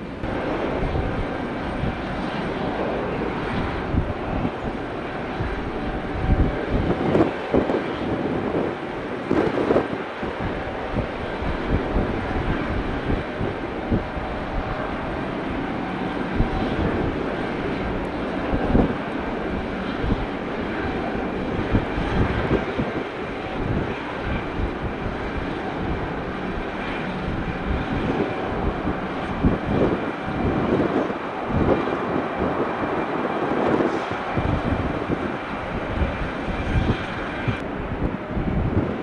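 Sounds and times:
jet engines rushing: 0.0s - 39.0s
wind buffeting microphone: 0.0s - 39.0s.

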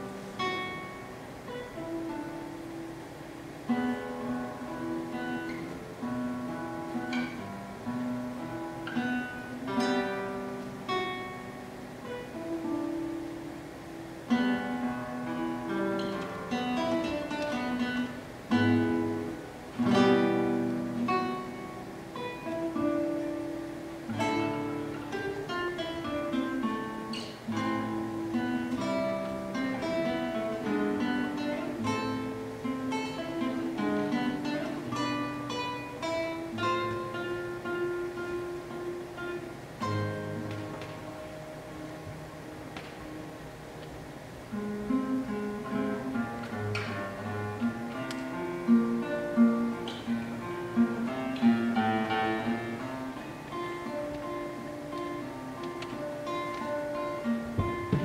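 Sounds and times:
classical guitar playing: 0.0s - 58.0s.

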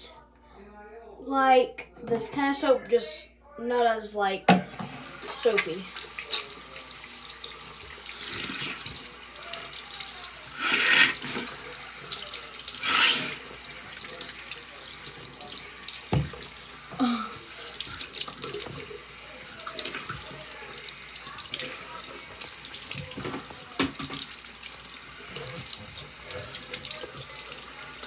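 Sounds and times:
tap running into a sink: 15.2s - 16.6s, 22.3s - 24.4s.

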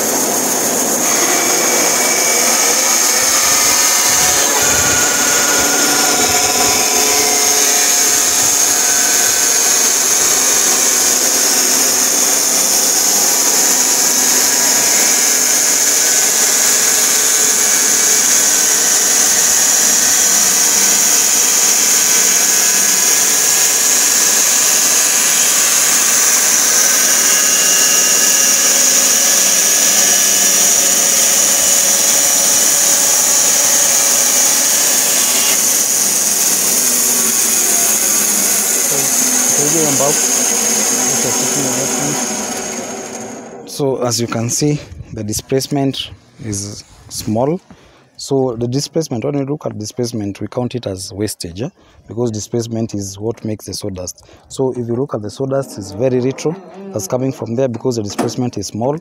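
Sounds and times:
band saw cutting log: 0.0s - 44.9s
high-pitched whine: 0.0s - 46.8s.

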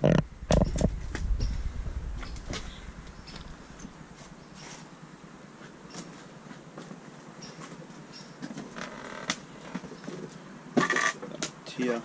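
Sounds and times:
floor creaking: 0.0s - 4.8s, 8.5s - 9.9s.

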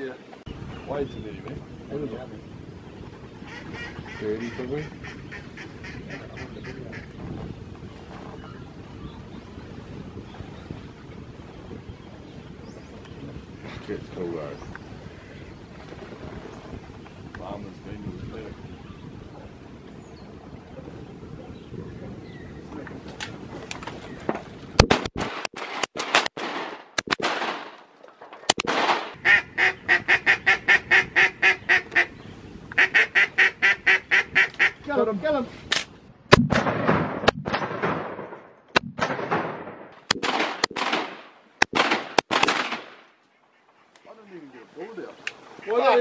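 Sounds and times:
ducks quacking: 3.4s - 7.2s, 29.1s - 35.0s, 43.2s - 46.0s
sharp loud cracks: 24.8s - 27.9s, 28.5s - 29.2s, 35.7s - 43.1s.

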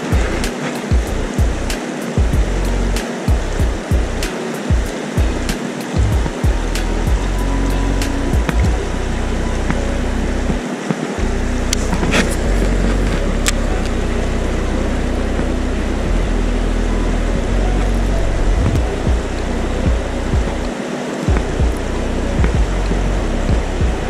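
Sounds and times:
stream water rushing: 0.0s - 16.1s
heavy low rumble: 0.0s - 24.0s.

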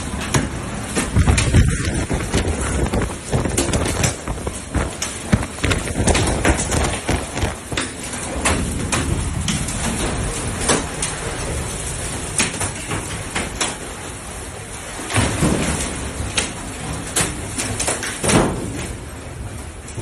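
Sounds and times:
loud bangs and clatters: 0.2s - 11.0s
wind blowing hard: 0.5s - 7.9s.

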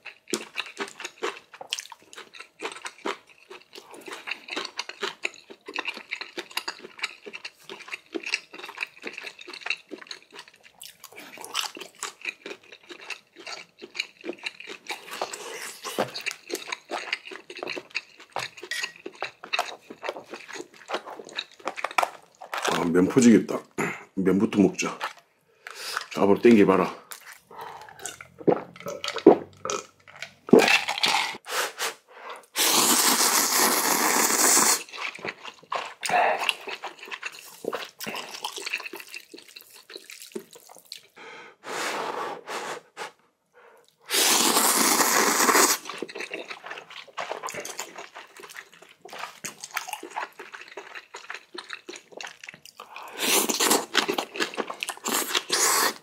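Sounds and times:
wet chewing and smacking: 0.0s - 23.0s, 24.9s - 31.4s, 34.2s - 41.2s, 43.8s - 56.0s
person slurping noodles: 30.5s - 36.8s, 41.6s - 43.2s, 44.0s - 48.1s, 52.8s - 54.1s, 55.0s - 56.0s.

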